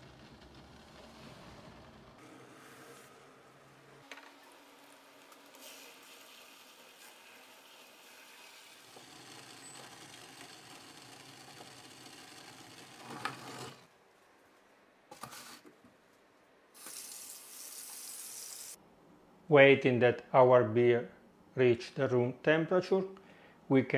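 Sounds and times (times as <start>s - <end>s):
pot boiling with low hiss: 0.0s - 13.0s.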